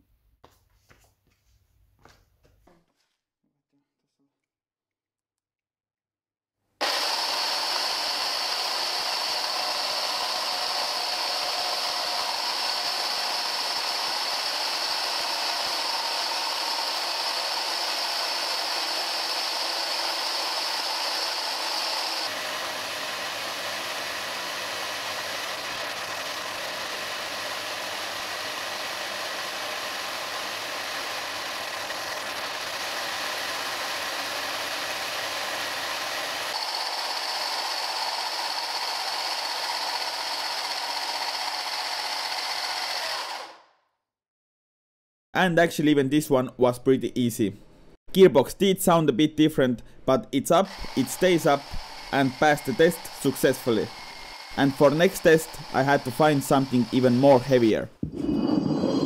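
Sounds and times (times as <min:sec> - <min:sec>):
electric motors whining: 0:06.8 - 0:43.6, 0:50.7 - 0:57.2.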